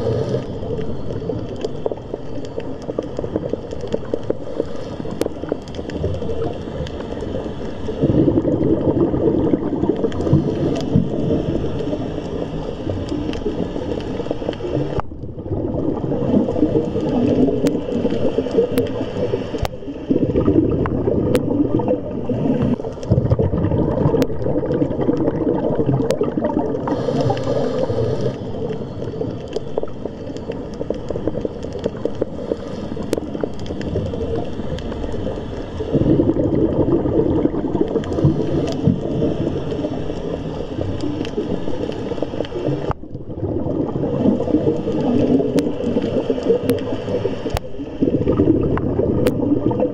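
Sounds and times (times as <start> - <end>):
underwater rush of moving water: 0.0 - 49.9.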